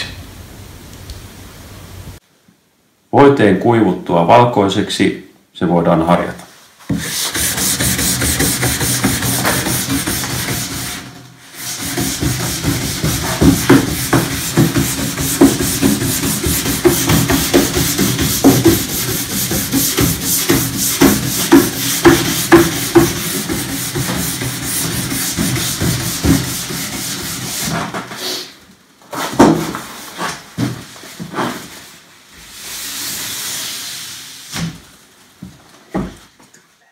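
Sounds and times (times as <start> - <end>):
brush scrubbing ski base: 6.9 - 28.4.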